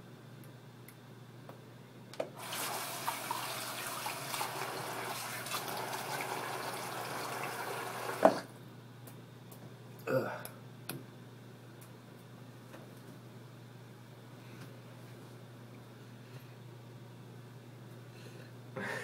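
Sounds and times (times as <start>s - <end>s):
tap running water into basin: 2.4s - 8.5s
tap shutting off with clunk: 8.1s - 8.5s.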